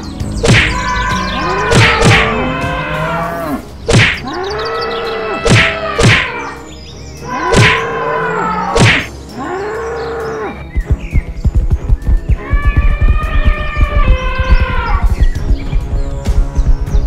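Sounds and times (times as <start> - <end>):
cartoon whacks of blows: 0.4 - 0.8, 1.7 - 2.3, 3.9 - 4.3, 5.4 - 6.4, 7.5 - 7.8, 8.8 - 9.1.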